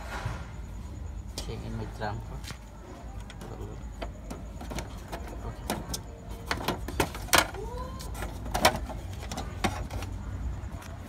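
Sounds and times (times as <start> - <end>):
plastic clicks and knocks: 3.2 - 7.6.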